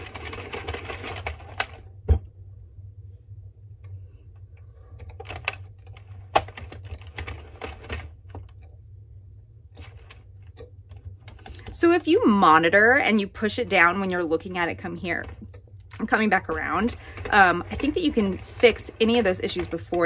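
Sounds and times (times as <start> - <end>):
knitting machine needles clattering: 0.0 - 1.9, 5.0 - 8.7, 9.7 - 12.0, 13.6 - 20.0.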